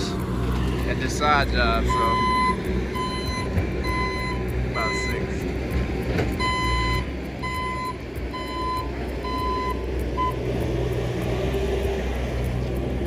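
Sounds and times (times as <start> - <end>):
engine running: 0.0 - 13.0
vehicle backup alarm beeping: 1.6 - 5.4, 6.3 - 10.6.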